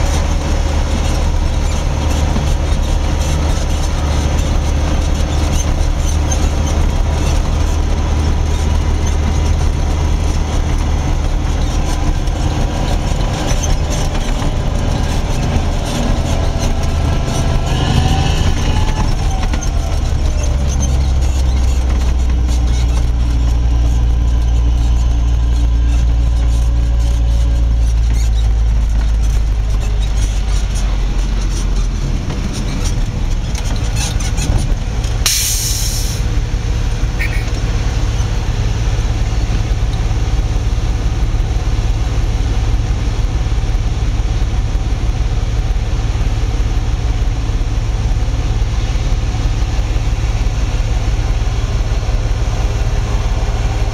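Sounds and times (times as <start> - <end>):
diesel engines running: 0.0 - 53.9
short hiss: 35.3 - 36.2.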